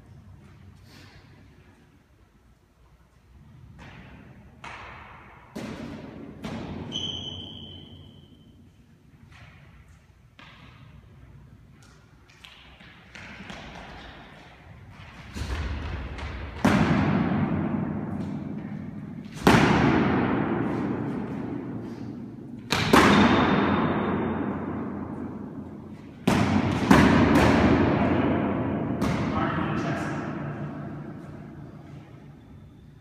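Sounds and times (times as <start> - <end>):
practice swords striking with echo: 3.8 - 8.6, 15.2 - 32.2.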